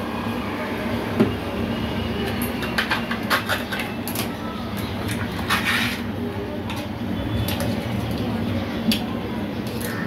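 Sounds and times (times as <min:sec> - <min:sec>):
low mechanical hum: 0:00.0 - 0:10.0
light clicks and scrapes: 0:05.0 - 0:06.1.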